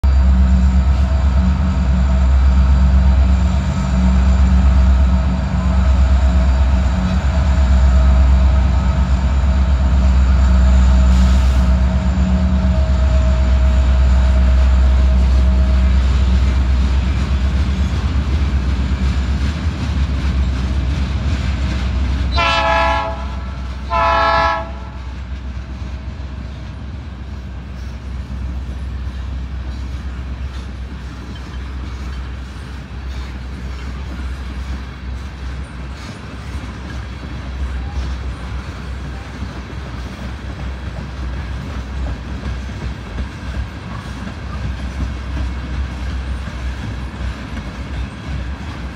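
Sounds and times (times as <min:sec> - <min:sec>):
diesel locomotive rumble: 0:00.0 - 0:48.9
train cars clattering: 0:00.0 - 0:48.9
locomotive horn blasts: 0:22.3 - 0:25.1.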